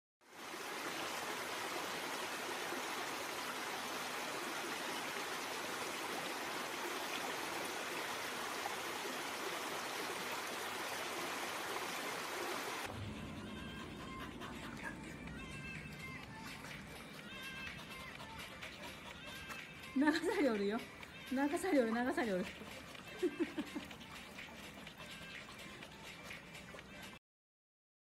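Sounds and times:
running water rushing: 0.2 - 13.0.

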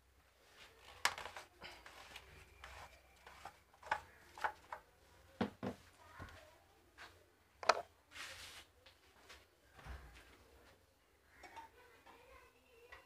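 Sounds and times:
plastic cap clicks and knocks: 7.6 - 7.8.

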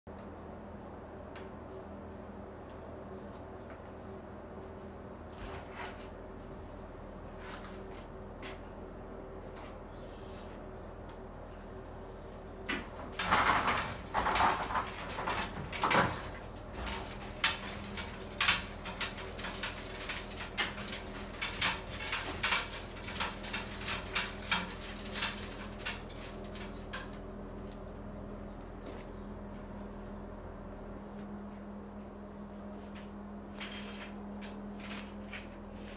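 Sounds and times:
machine hum: 0.1 - 35.9
metal clanks and clicks: 12.7 - 27.2
metal rack rattling and scraping: 12.7 - 27.5.

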